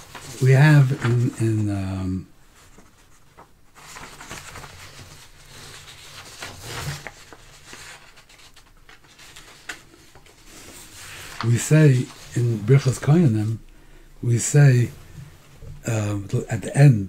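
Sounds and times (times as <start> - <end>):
paper sheets rustling: 0.0 - 13.6.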